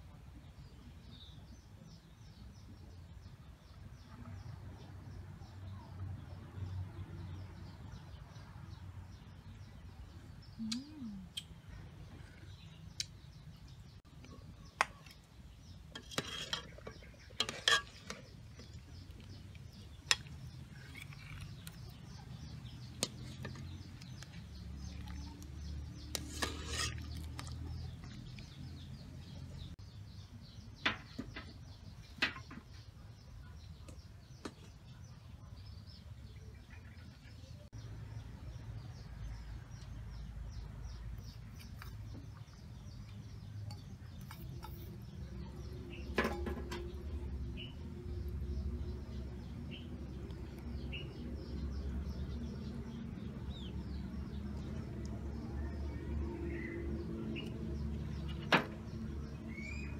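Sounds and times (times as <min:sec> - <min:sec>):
birds chirping: 0:00.4 - 0:59.9
metal ladle clinking on pot: 0:15.9 - 0:18.8, 0:26.1 - 0:27.5.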